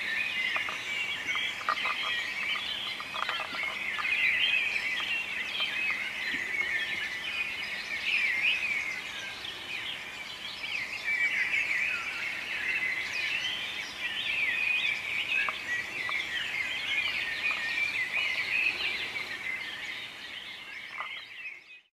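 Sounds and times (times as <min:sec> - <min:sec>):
birds chirping: 0:00.0 - 0:21.9.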